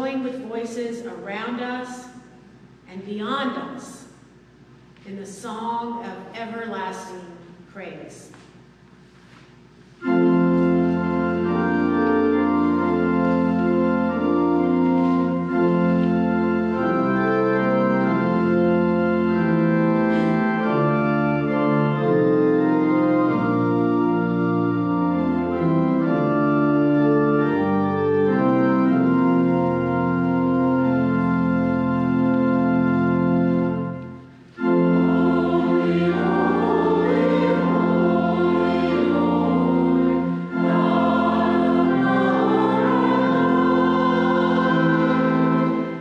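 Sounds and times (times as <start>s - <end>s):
church organ playing chords: 9.9s - 46.0s.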